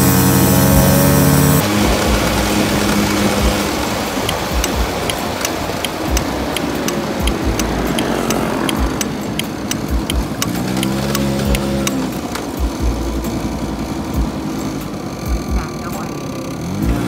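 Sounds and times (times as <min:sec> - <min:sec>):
moped engine running: 0:00.0 - 0:17.0
regular ticking: 0:00.0 - 0:17.0
wind and road noise: 0:00.0 - 0:17.0.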